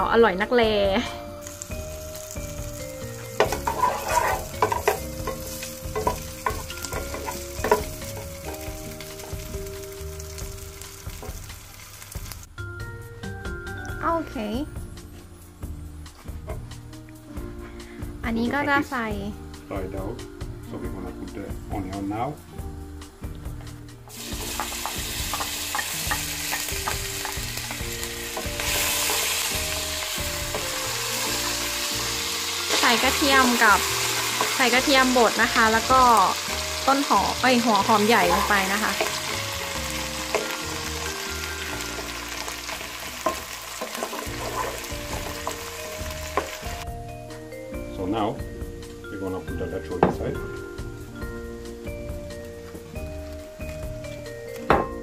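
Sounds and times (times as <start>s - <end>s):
bacon sizzling in a pot: 0.0s - 12.6s, 14.2s - 47.4s, 48.0s - 55.0s
wooden spatula scraping a pot: 3.4s - 8.3s, 42.0s - 45.7s.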